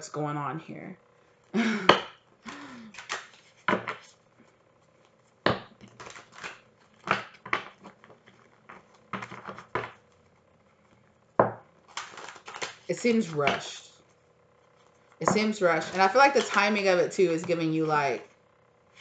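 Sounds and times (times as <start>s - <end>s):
cards being shuffled: 2.5s - 10.4s, 11.8s - 13.9s, 14.7s - 18.3s.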